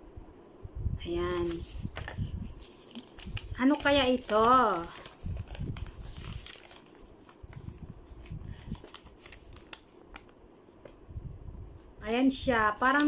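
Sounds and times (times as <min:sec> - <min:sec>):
paper rustling and crinkling: 0:01.2 - 0:11.0, 0:12.7 - 0:13.0.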